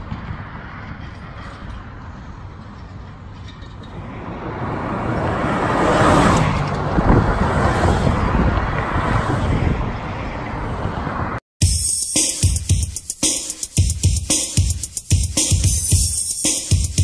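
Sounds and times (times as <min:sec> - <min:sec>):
cars driving past: 0:00.0 - 0:11.4.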